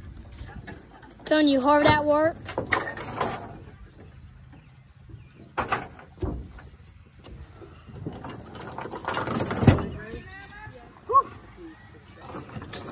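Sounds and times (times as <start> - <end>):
steel chain clinking on wood: 0.0 - 3.7, 5.6 - 6.8, 7.9 - 10.3, 12.2 - 12.9.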